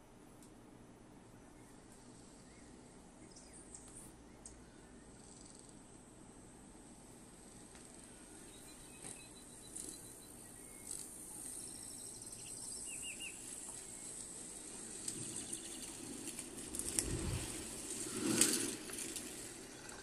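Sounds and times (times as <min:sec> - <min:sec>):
bird chirps: 0:01.5 - 0:05.5, 0:08.0 - 0:16.2
insect-like hiss: 0:06.4 - 0:20.0
low rumble: 0:16.3 - 0:20.0.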